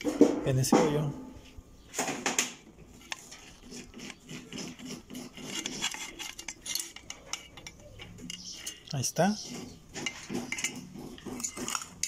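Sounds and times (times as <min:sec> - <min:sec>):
metal clinking and scraping: 0:02.9 - 0:12.0.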